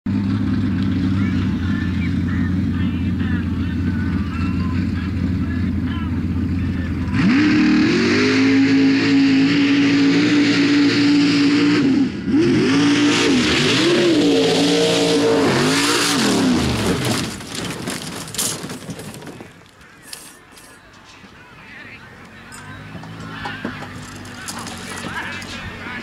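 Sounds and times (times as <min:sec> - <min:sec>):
truck engine revving: 0:00.1 - 0:20.0, 0:21.0 - 0:26.0
thuds and knocks of truck rolling: 0:15.6 - 0:19.8.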